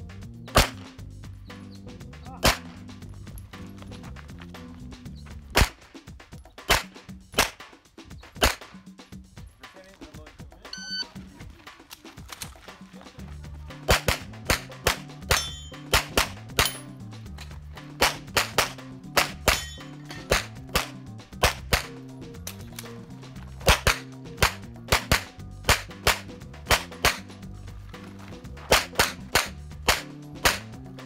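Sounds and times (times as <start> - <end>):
pistol shots: 0.5 - 1.0, 2.4 - 2.8, 5.5 - 5.9, 6.6 - 7.7, 8.4 - 8.8, 13.8 - 16.9, 18.0 - 22.0, 23.6 - 27.3, 28.7 - 30.8.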